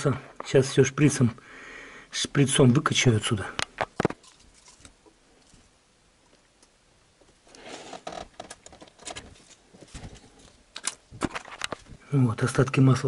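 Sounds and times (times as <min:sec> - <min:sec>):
scraping and rustling: 0:03.8 - 0:05.7, 0:07.5 - 0:12.0.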